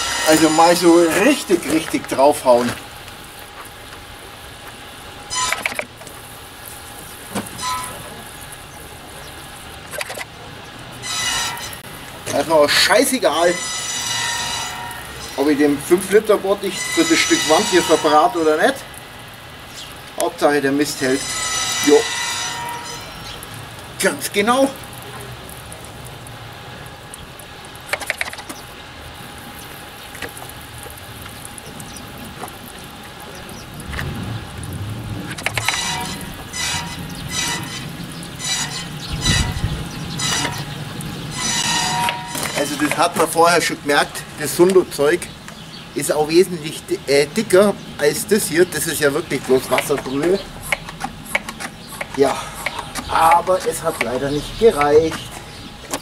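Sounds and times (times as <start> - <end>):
pump sprayer squeaks: 0.0 - 2.8, 5.3 - 6.0, 7.2 - 8.5, 11.0 - 18.9, 20.3 - 24.6, 35.4 - 44.6, 48.4 - 56.0.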